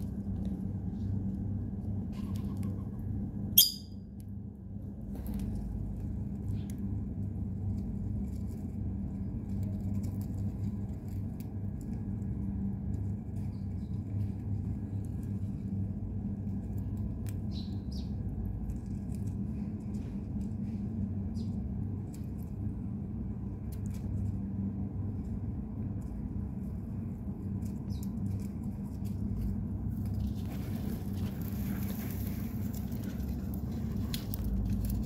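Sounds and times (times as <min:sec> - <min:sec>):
low hum: 0:00.0 - 0:35.0
high bird chirps: 0:03.6 - 0:04.0.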